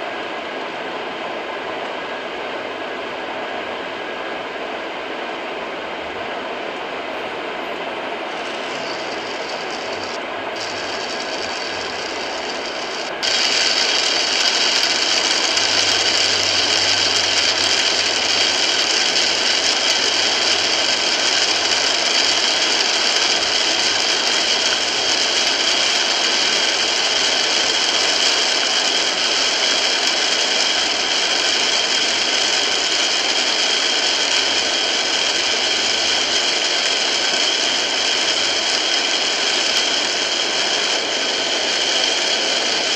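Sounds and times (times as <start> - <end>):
heavy rain on car roof: 10.7 - 34.0.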